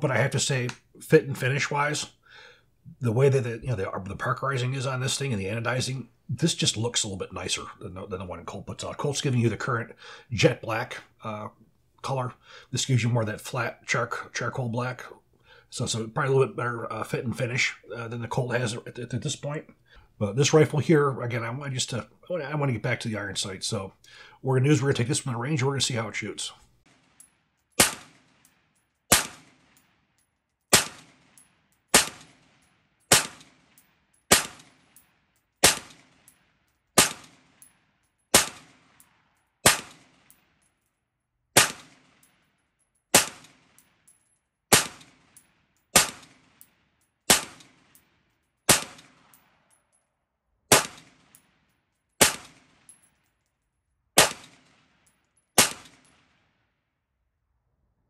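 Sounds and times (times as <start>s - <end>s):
rifle shots with echo: 27.8s - 28.4s, 29.1s - 29.8s, 30.7s - 31.3s, 31.9s - 32.5s, 33.1s - 33.7s, 34.3s - 34.8s, 35.6s - 36.1s, 37.0s - 37.5s, 38.3s - 39.0s, 39.6s - 40.3s, 41.6s - 42.2s, 43.1s - 43.7s, 44.7s - 45.3s, 46.0s - 46.6s, 47.3s - 47.9s, 48.7s - 49.3s, 50.7s - 51.3s, 52.2s - 52.8s, 54.2s - 54.8s, 55.6s - 56.3s.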